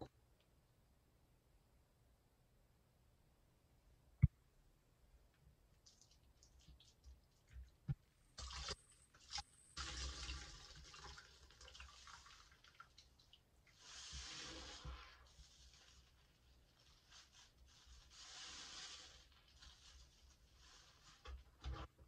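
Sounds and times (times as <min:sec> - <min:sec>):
small drips: 0:05.8 - 0:14.3
sponge squishing and splashing: 0:08.4 - 0:21.9.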